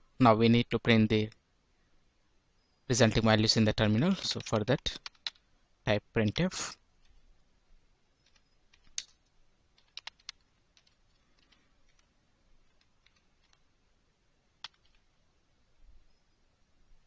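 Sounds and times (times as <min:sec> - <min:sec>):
keyboard keystrokes: 0:04.1 - 0:05.4, 0:08.2 - 0:09.2, 0:09.8 - 0:13.6, 0:14.6 - 0:15.0.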